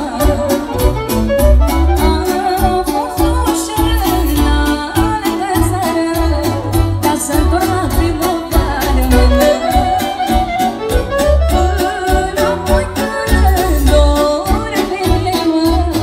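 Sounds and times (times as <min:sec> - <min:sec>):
clarinet: 0:00.0 - 0:03.8, 0:09.1 - 0:13.4
woman singing into a microphone: 0:00.0 - 0:10.3, 0:11.4 - 0:16.0.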